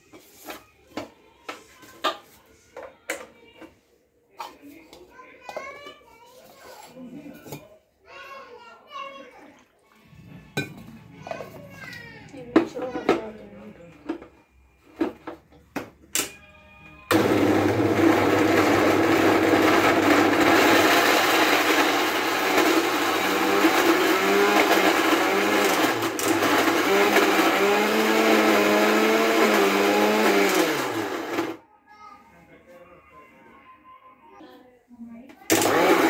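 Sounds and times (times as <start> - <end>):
mixer grinder motor grinding: 17.1 - 31.6, 35.5 - 36.0.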